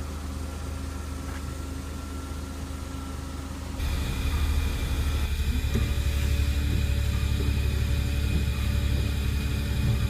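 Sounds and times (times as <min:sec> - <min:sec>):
car engine idling: 0:03.6 - 0:10.0
loud hiss: 0:03.8 - 0:10.0.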